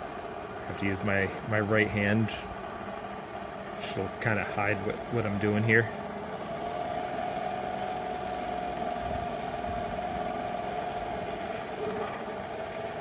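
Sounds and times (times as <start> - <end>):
polishing machine whine: 3.7 - 13.0.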